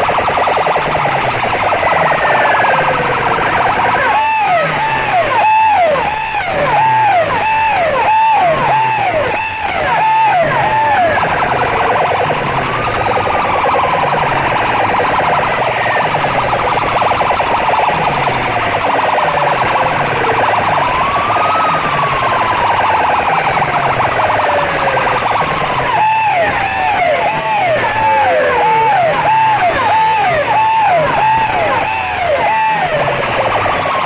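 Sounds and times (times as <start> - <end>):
electronic siren wails: 0.0 - 34.0.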